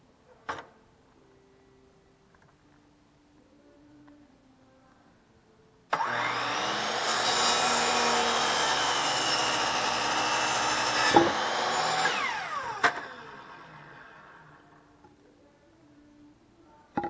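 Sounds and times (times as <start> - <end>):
miter saw cutting wood: 6.0 - 14.4
saw motor winding down: 6.0 - 14.6.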